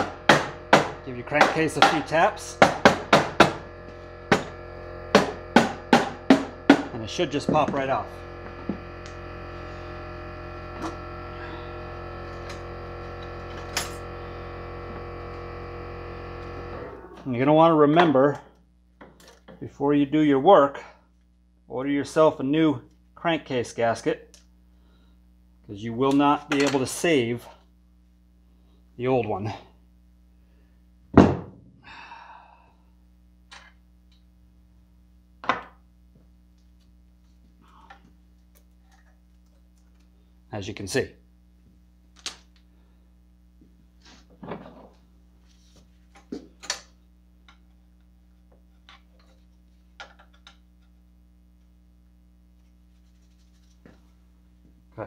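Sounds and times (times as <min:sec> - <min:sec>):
heavy thunk: 0:31.1 - 0:31.7.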